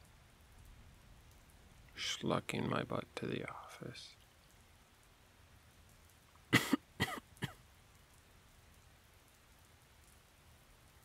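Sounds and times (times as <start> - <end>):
faint rain patter: 0.0 - 11.0
man coughing: 6.6 - 7.6.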